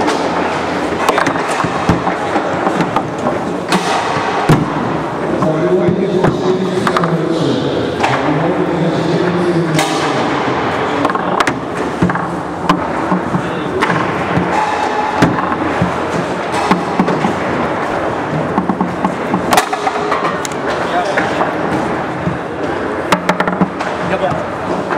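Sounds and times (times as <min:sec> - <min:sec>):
foosball clacks and knocks: 0:01.0 - 0:04.8, 0:11.0 - 0:17.6, 0:18.2 - 0:21.5, 0:23.0 - 0:24.9.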